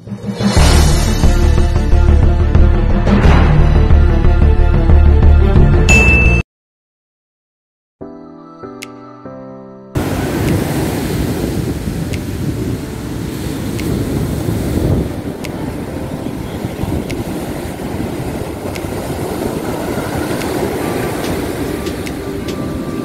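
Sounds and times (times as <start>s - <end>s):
ocean surf breaking on beach: 10.0s - 23.0s
wind buffeting microphone: 10.0s - 23.0s.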